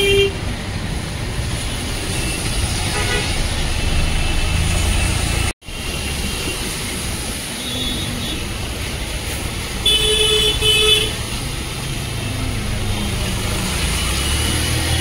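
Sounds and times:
vehicle horn honking: 0.0s - 0.4s, 2.9s - 3.4s, 9.8s - 11.2s
traffic on wet street: 0.0s - 15.0s.

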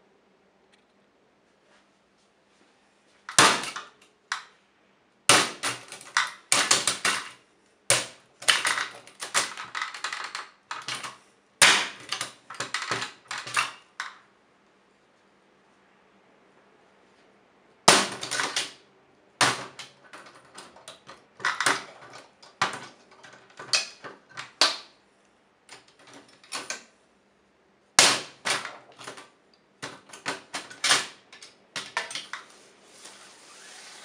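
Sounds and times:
soft rustle: 1.4s - 3.3s, 32.4s - 33.9s
hammer striking typewriter: 3.3s - 4.4s, 5.3s - 13.8s, 17.9s - 18.8s, 19.4s - 24.9s, 28.0s - 29.2s.

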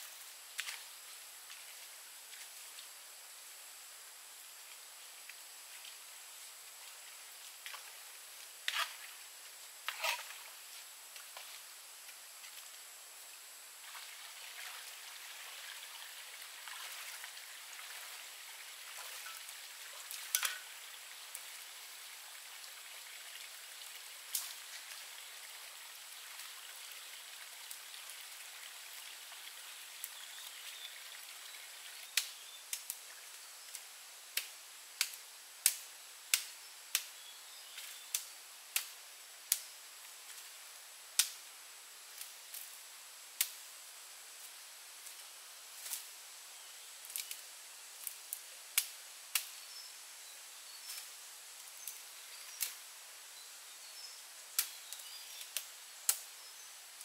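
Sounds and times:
faint steady hiss: 0.0s - 57.0s.

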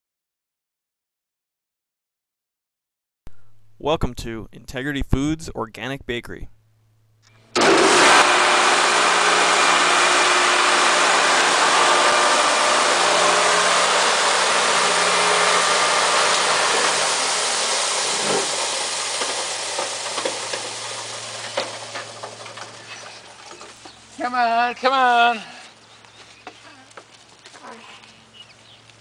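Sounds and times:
electric grain mill whirring: 7.5s - 24.1s.

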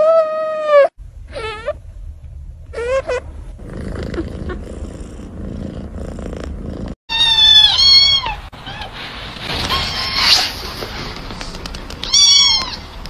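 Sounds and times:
kitten purring: 3.5s - 7.0s
kitten meowing: 7.1s - 8.9s, 12.0s - 12.9s.

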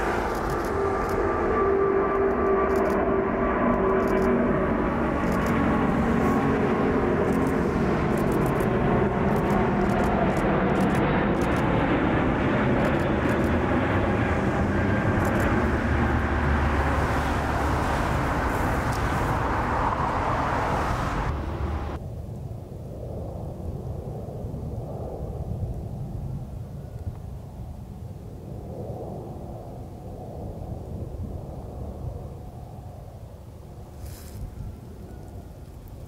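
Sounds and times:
jet engine rush: 0.0s - 22.0s.

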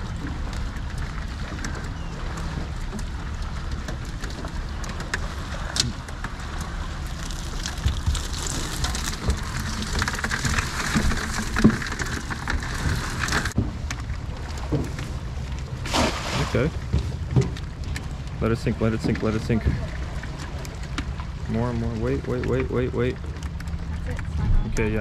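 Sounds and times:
fish flopping and slapping: 0.0s - 18.4s
low rumble: 0.0s - 25.0s
water dripping and splashing: 0.0s - 25.0s.

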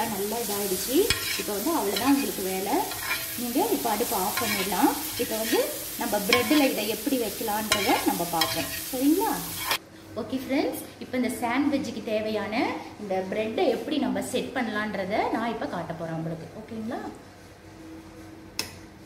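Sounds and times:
egg sizzling: 0.0s - 9.8s
metal spatula scraping on griddle: 0.0s - 9.8s
spatula tapping griddle: 1.0s - 3.4s, 4.3s - 5.6s, 6.2s - 6.8s, 7.7s - 8.8s.

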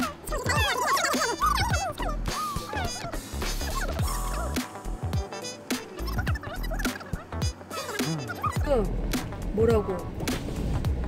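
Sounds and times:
background music with gliding melody: 0.0s - 11.0s
low bass: 3.1s - 5.2s, 8.1s - 11.0s.

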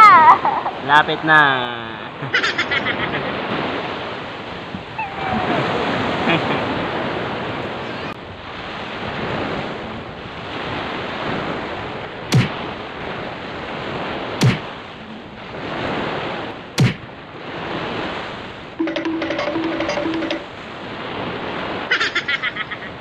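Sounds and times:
waves washing on sandy shore: 0.1s - 23.0s
wind buffeting microphone: 3.1s - 18.8s
sharp knock: 12.3s - 12.6s, 14.4s - 14.7s, 16.8s - 17.0s.

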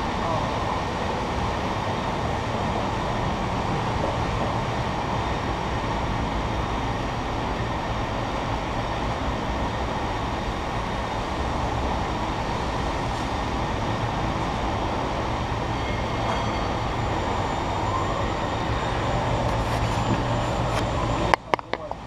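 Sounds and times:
cable car rumble and hum: 0.0s - 22.0s.

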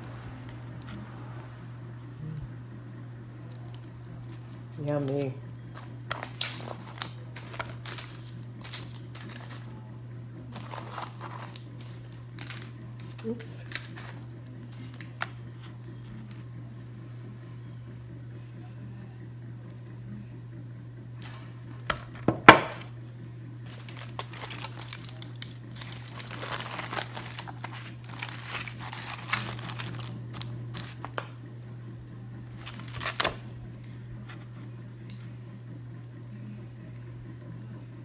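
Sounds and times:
low steady hum: 0.0s - 38.0s
aluminum foil crinkling: 3.5s - 16.5s, 23.6s - 31.4s, 32.4s - 35.2s.

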